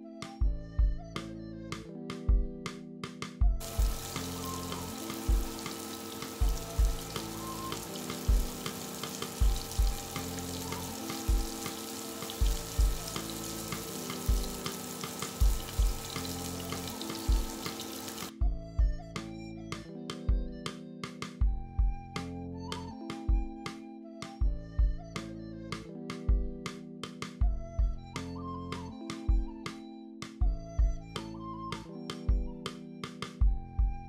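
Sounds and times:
background music with bass beat: 0.2 - 5.6, 18.3 - 34.0
shrimp sizzling in oil: 3.6 - 18.3.

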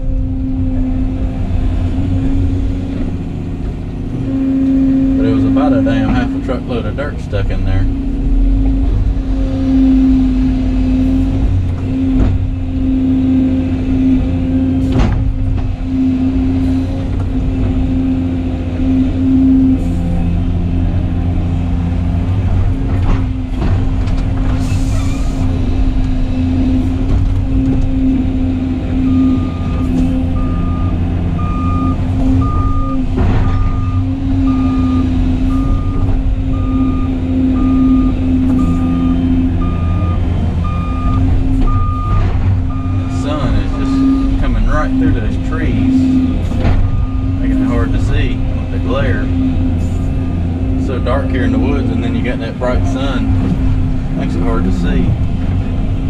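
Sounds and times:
excavator engine and hydraulics: 0.0 - 56.0
backup alarm beeping: 29.0 - 45.0, 50.8 - 52.1.

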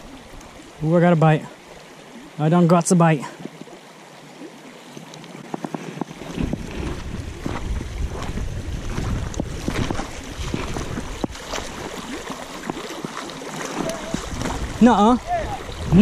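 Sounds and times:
creek water running over gravel: 0.0 - 16.0
wind rumbling on microphone: 5.2 - 16.0.

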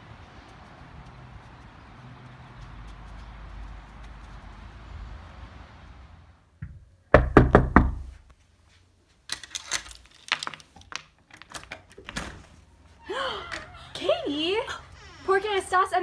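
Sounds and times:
loud knocks on a door: 6.6 - 8.1
metal door chain rattling: 9.3 - 12.2.

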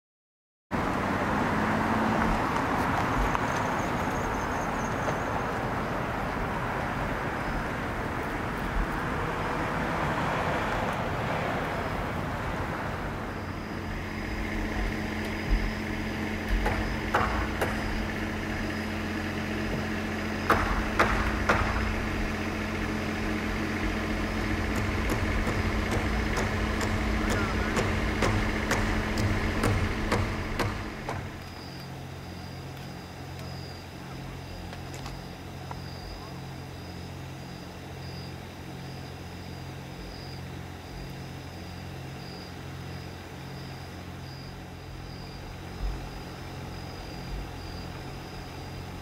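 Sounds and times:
low engine hum: 0.7 - 49.0
rushing traffic noise: 0.7 - 49.0
sharp knocks: 14.6 - 18.3, 19.8 - 22.3, 24.3 - 31.5.

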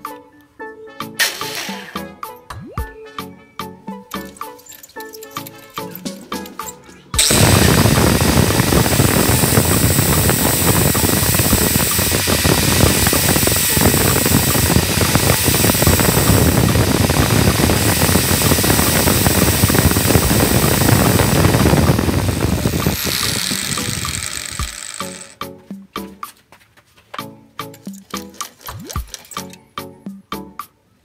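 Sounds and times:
angle grinder running: 7.2 - 25.4.

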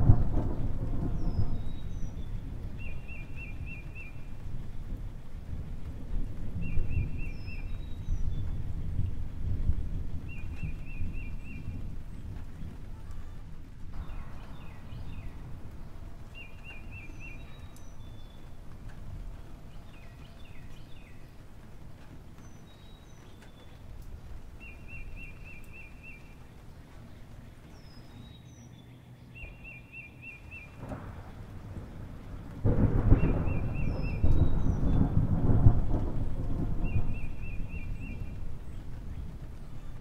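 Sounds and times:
rain and thunder rumble: 0.0 - 40.0
birds trilling and chirping: 1.0 - 4.7, 14.0 - 35.7, 36.5 - 40.0.

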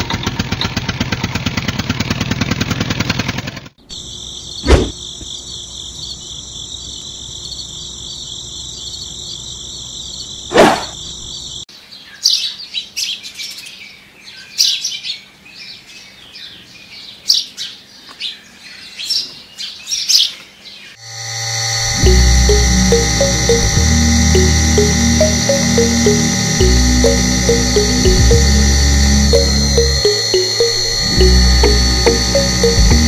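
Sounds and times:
high-pitched drone: 21.0 - 33.0.

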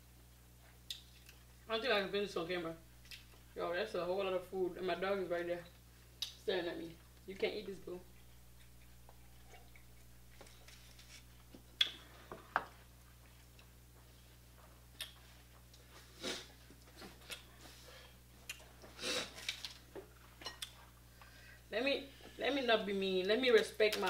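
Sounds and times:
low steady hum: 0.0 - 24.0
chewing: 8.1 - 12.0, 14.9 - 21.3.

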